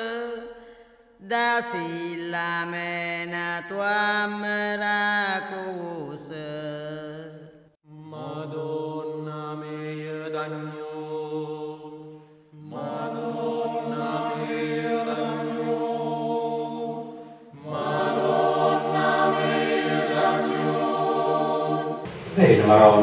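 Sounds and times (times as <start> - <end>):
mixed choir singing chords: 8.0 - 23.0.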